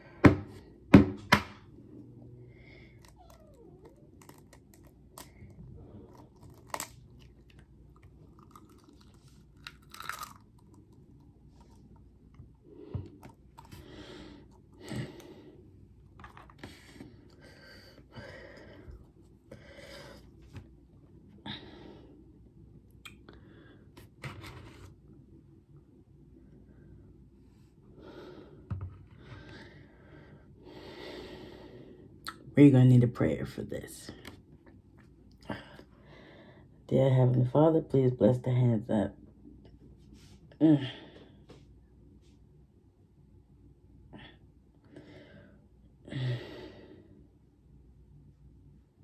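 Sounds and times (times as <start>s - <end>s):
eggshells cracking and peeling: 3.0s - 11.8s.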